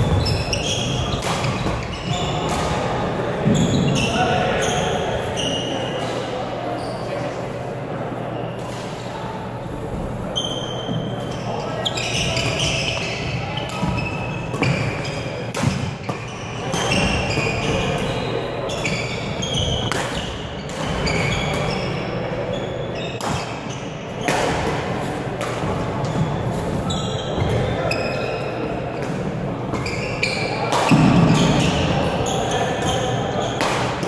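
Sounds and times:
shoes squeaking on wooden floor: 0:00.0 - 0:02.6
background chatter: 0:00.0 - 0:34.0.

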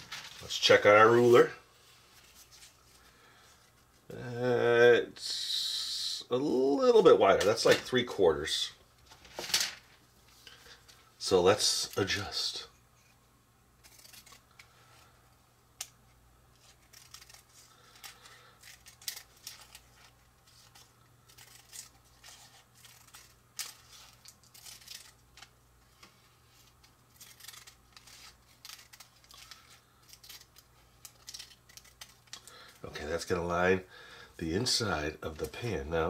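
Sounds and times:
scissors snipping paper: 0:13.8 - 0:14.4, 0:16.6 - 0:25.5, 0:27.1 - 0:32.5.

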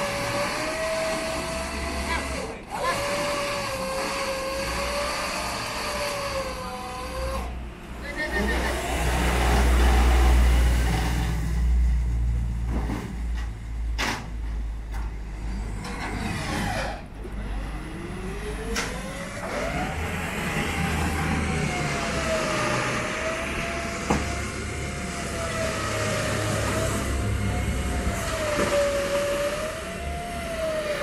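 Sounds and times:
winch whining: 0:15.7 - 0:31.0.

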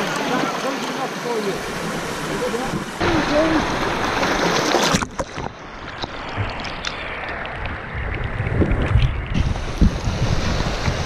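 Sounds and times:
surf splashing over rocks: 0:00.0 - 0:11.0
sharp splashes or knocks: 0:02.7 - 0:07.4
wind buffeting microphone: 0:06.2 - 0:11.0.

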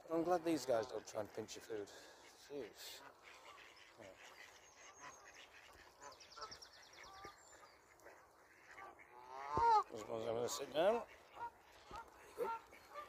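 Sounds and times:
waterfowl calling: 0:00.0 - 0:13.0.

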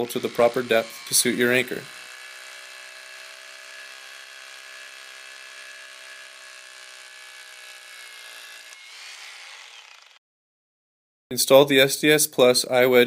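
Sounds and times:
rotary hammer drilling concrete: 0:00.0 - 0:10.2.

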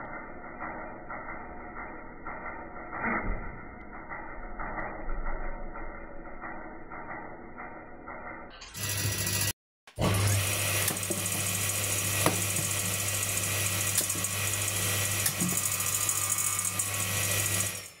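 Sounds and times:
circular saw running: 0:00.0 - 0:18.0.

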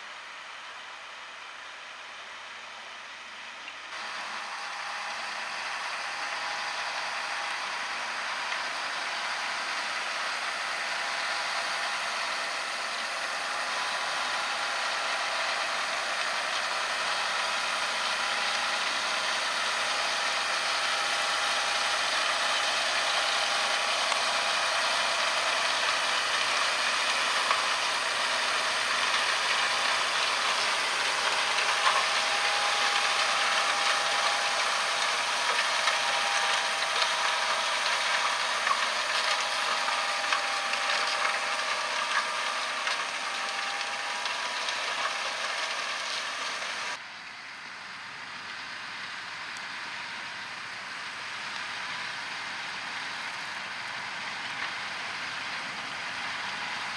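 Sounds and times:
steady whine: 0:00.0 - 0:56.9
tractor diesel engine under load: 0:00.0 - 0:56.9.

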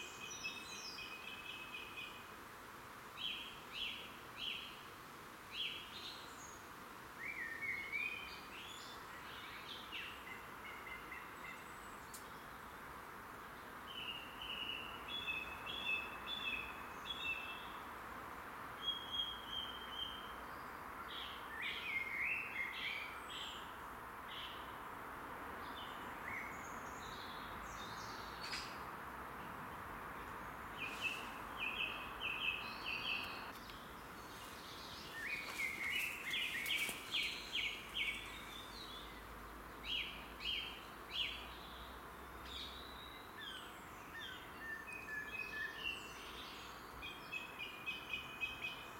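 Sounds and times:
songbirds singing: 0:00.0 - 0:02.4, 0:03.2 - 0:18.0, 0:18.6 - 0:24.9, 0:25.5 - 0:48.9.

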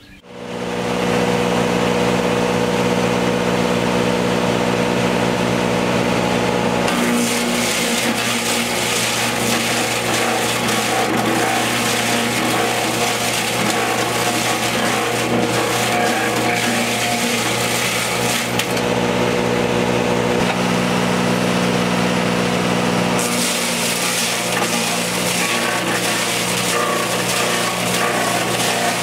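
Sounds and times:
machine hum: 0:00.0 - 0:29.0
log being shaved: 0:06.9 - 0:18.9, 0:23.2 - 0:29.0.

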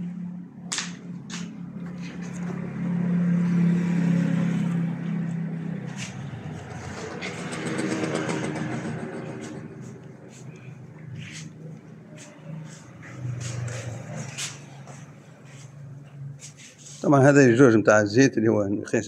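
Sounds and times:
sharp clicks and knocks: 0:00.7 - 0:02.6, 0:06.7 - 0:10.1
car engine running: 0:01.3 - 0:15.5.

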